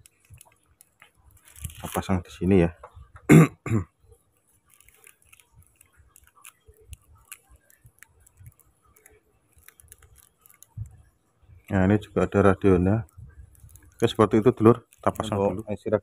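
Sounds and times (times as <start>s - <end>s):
small plastic clicks: 0.0s - 2.0s, 4.6s - 11.0s, 13.1s - 15.4s
light rustling of wires: 0.0s - 3.3s, 4.0s - 16.0s.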